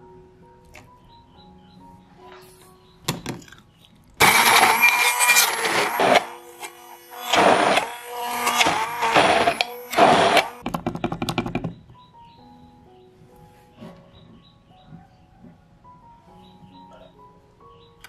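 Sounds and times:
stick blender whirring: 4.2 - 10.6.

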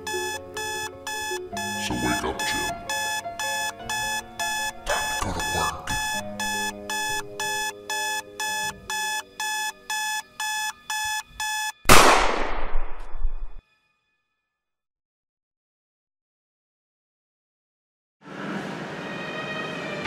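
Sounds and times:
alarm clock beeping: 0.0 - 11.9.

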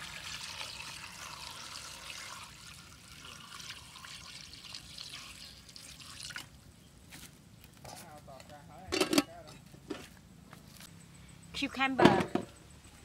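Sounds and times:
water pouring into a pot: 0.0 - 6.5.

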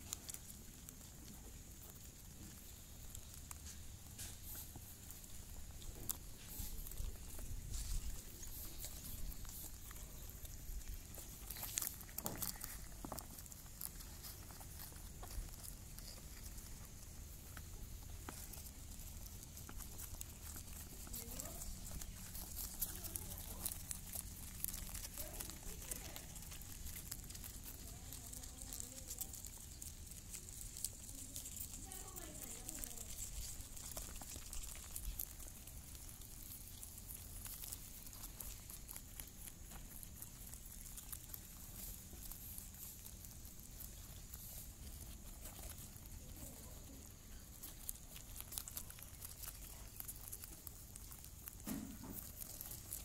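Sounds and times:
rabbit chewing leaves: 0.0 - 53.0
faint voices: 4.5 - 36.8, 43.7 - 53.0.

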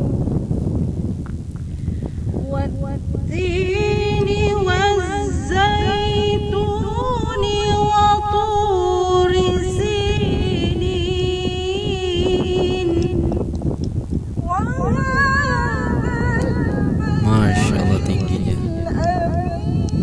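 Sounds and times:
woman chanting recitation: 2.4 - 13.4, 14.5 - 20.0
steady low rumble: 17.0 - 19.4.

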